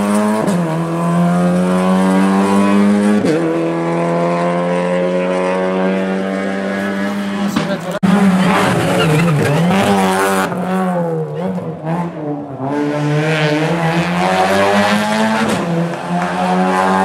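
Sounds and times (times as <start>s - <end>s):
rally car engine revving: 0.0s - 17.0s.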